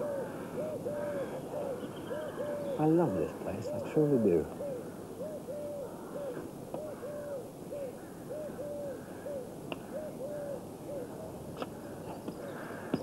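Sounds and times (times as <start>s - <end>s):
dove cooing: 0.0s - 13.0s.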